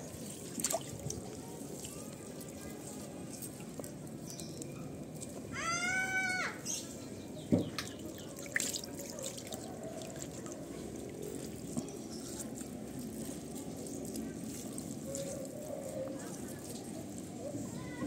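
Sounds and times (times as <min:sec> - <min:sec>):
small water splashes: 0:00.0 - 0:04.3, 0:07.5 - 0:17.4
water dripping and trickling: 0:00.0 - 0:18.0.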